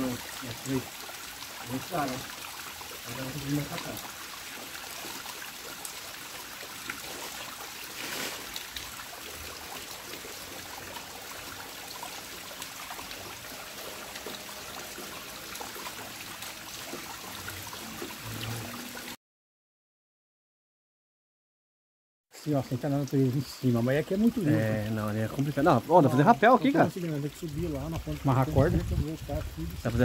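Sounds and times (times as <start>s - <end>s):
waterfall rushing: 0.0s - 0.9s.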